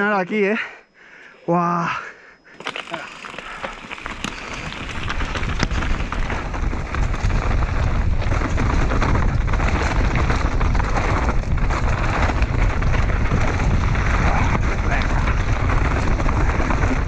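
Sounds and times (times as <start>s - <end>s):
bike clicks and rattles: 2.5s - 17.0s
bike tyres crunching on ground: 2.6s - 17.0s
wind buffeting microphone: 4.6s - 17.0s.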